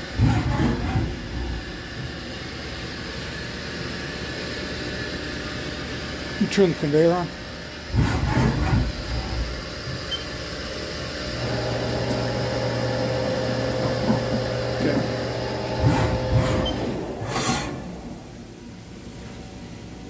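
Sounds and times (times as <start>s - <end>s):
auger motor humming: 0.0s - 2.8s, 11.4s - 18.5s.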